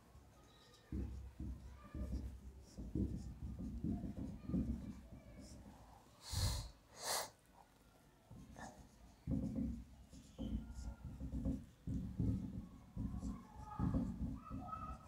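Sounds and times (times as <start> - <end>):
marker writing on whiteboard: 0.0 - 6.7, 8.3 - 15.0
breaths through the nose: 6.2 - 7.4.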